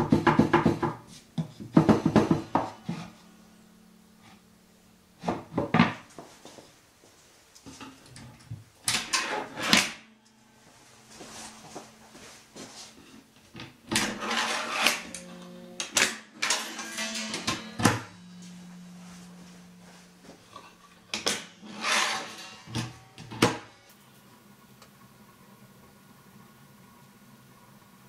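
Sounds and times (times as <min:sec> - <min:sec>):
wooden panels knocking: 0:00.0 - 0:02.9
wood scraping along wood: 0:14.0 - 0:15.3, 0:17.9 - 0:23.0.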